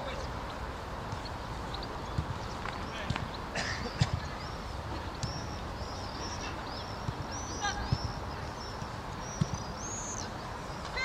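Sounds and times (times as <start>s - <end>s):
steady background hiss: 0.0s - 11.0s
ball kicked thuds: 9.4s - 9.7s.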